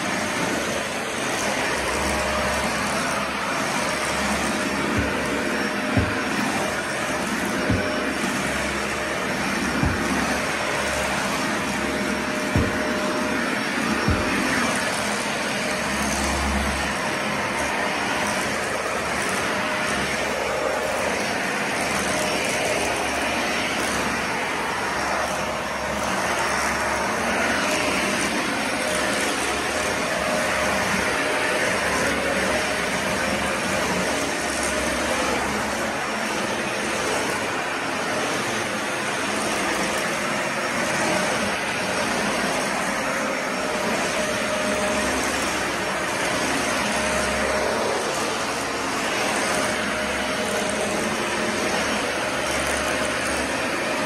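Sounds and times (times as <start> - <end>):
vacuum cleaner running: 0.0 - 54.0.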